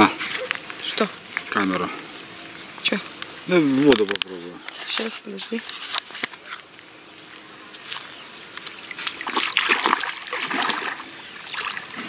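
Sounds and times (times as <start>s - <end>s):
feet splashing in shallow water: 8.6s - 12.0s.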